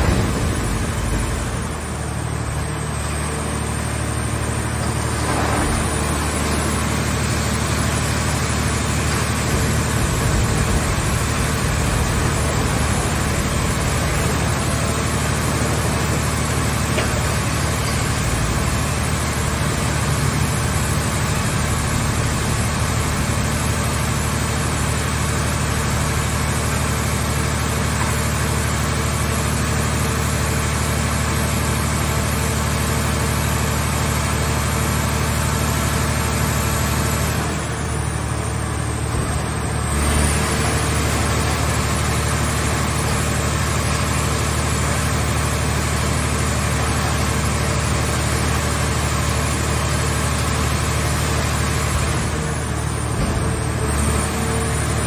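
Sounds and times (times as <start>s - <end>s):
hydraulic power unit humming: 0.0s - 31.1s.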